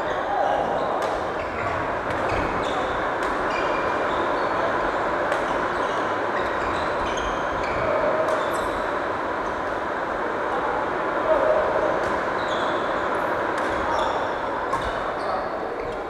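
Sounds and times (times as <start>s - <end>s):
shoes squeaking on floor: 12.4s - 13.0s.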